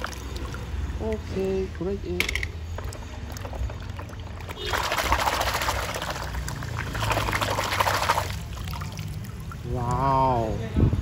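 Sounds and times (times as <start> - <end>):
water splashing into basin: 0.0 - 10.6.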